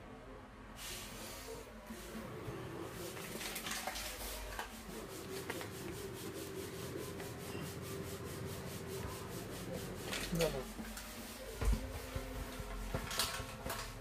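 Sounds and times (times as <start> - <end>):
plastic packet crinkling: 3.2 - 4.7.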